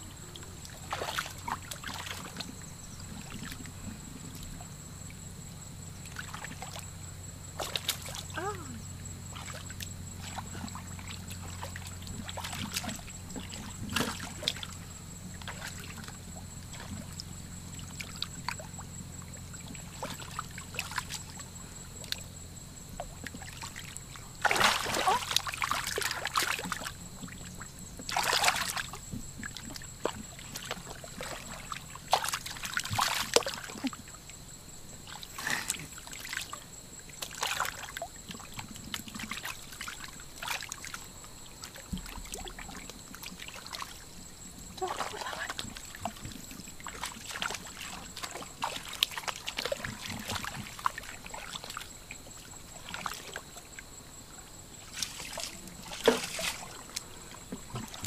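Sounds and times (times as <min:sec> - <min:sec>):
hands splashing in muddy water: 0:24.4 - 0:26.8, 0:54.9 - 0:57.1.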